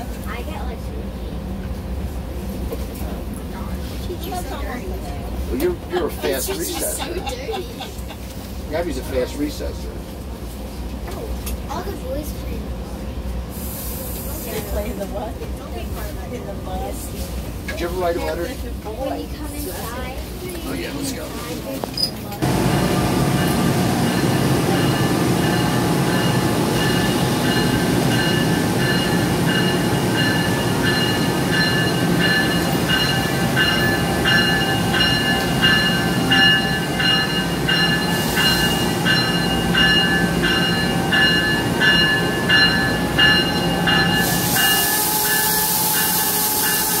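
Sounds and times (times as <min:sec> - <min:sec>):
hiss of released air: 0:13.5 - 0:14.7
electric train equipment humming: 0:22.4 - 0:47.0.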